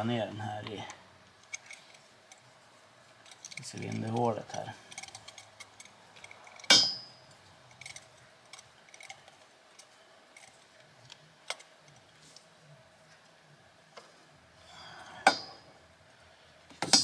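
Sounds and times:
ringing metallic clink: 6.7s - 7.3s.

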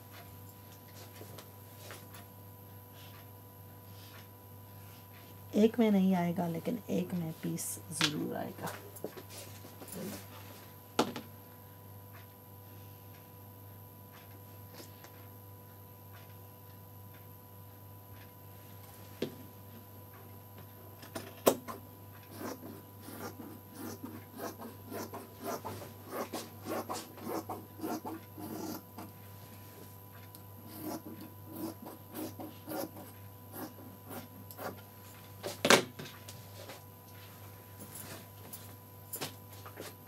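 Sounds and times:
faint steady hum: 0.0s - 40.0s
shears snipping fabric: 21.7s - 29.2s.

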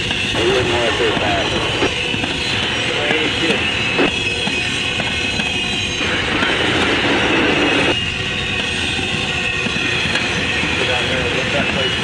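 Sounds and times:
high wheel squeal: 0.0s - 12.0s
train wheels rumbling on rail: 0.0s - 12.0s.

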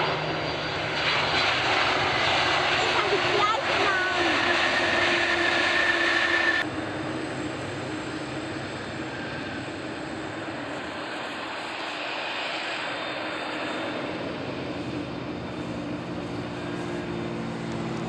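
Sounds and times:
distant jet engine noise: 0.0s - 18.0s
jet engines running loud: 0.0s - 18.0s.

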